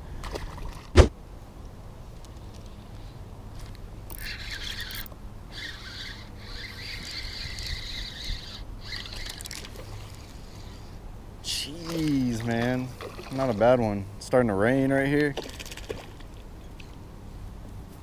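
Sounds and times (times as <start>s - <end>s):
fishing reel whirring: 4.1s - 13.6s.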